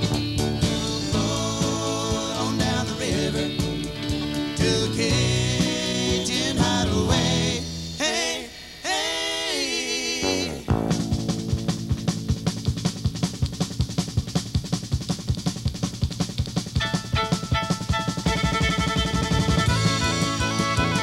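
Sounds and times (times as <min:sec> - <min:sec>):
country band playing: 0:00.0 - 0:08.2, 0:10.7 - 0:13.3, 0:16.8 - 0:21.0.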